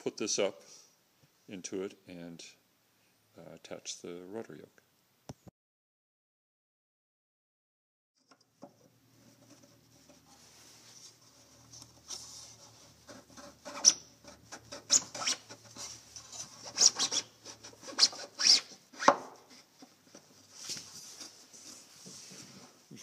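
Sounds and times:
post rubbing and scraping: 9.2 - 22.8.

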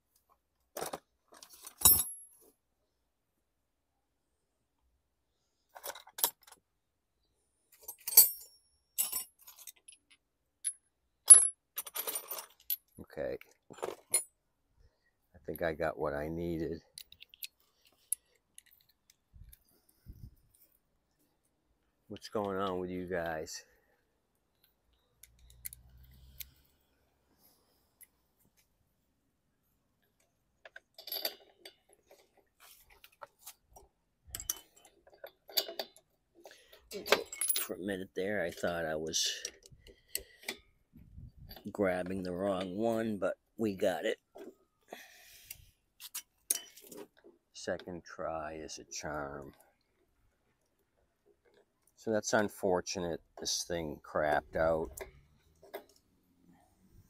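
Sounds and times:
metal hand tools clinking: 34.3 - 36.0.

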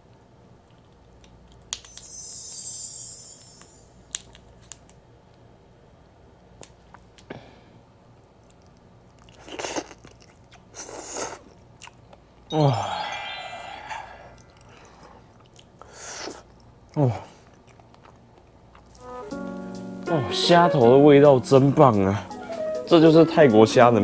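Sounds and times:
chewing prawn: 8.4 - 12.3, 14.3 - 19.0
short falling pitch sound: 12.5 - 14.2.

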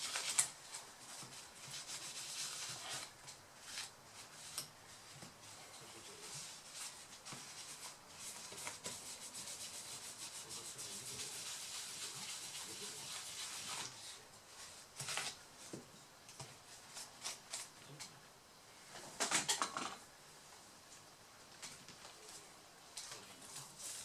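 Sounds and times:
tissue rubbing on metal: 0.0 - 15.7, 23.2 - 24.0.

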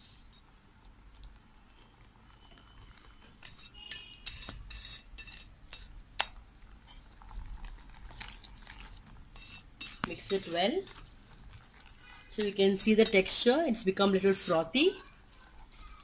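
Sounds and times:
whisk scraping batter: 1.8 - 5.5, 8.2 - 13.3, 14.0 - 16.0.

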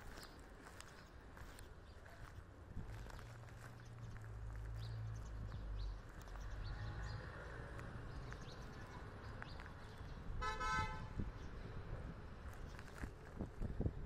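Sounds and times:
faint street noise: 0.0 - 14.0
vehicle horn honk: 10.4 - 11.2.

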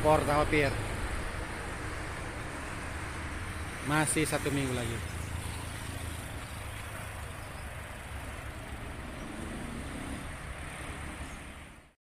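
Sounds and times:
outdoor noise: 0.0 - 12.0
road traffic rumble: 0.0 - 12.0.

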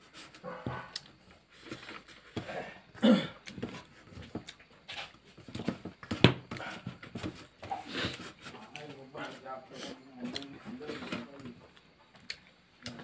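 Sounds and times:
chewing and mouth sounds: 3.4 - 5.2, 11.6 - 13.0.

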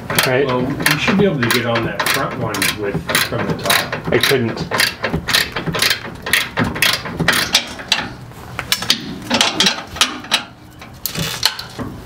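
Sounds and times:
ratchet wrench clicking: 1.5 - 8.0.

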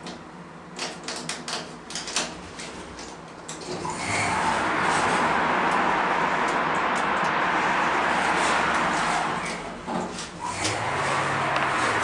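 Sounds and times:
sliding doors opening: 3.6 - 12.0
rush of outside noise: 3.7 - 12.0.

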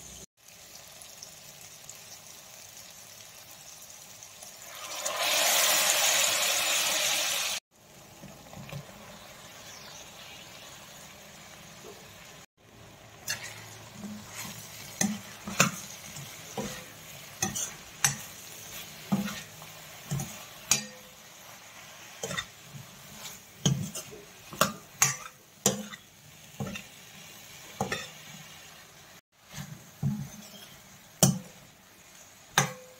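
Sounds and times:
faint frying sizzle: 0.0 - 32.9
metal spoon clinking and scraping pan: 13.2 - 27.0, 27.7 - 28.3, 29.5 - 31.6, 32.5 - 32.9.

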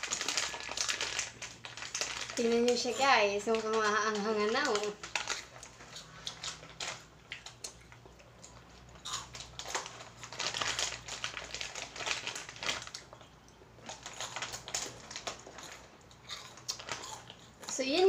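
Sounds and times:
plastic bag crinkling: 0.0 - 7.8, 8.5 - 18.0
snack crunching: 5.0 - 17.7.

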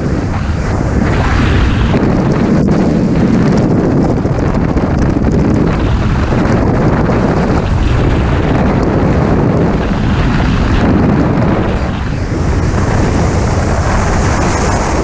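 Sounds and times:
wind blasting over microphone: 0.0 - 15.0.

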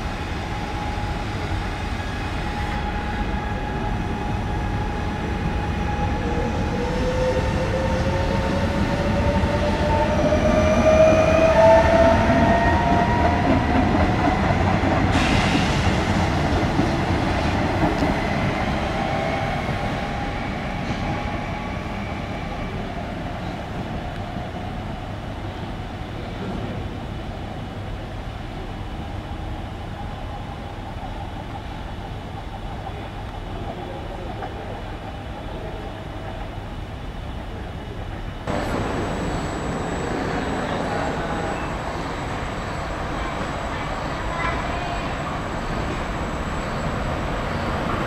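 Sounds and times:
wheels rumbling on rails: 37.5 - 48.0.

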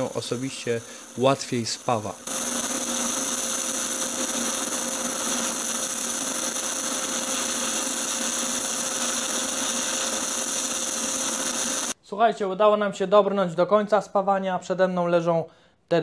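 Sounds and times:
welding arc hissing: 0.0 - 12.0.

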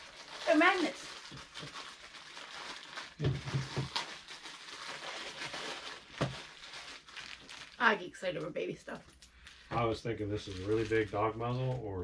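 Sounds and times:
plastic bag rustling: 0.0 - 8.6, 9.4 - 11.9.

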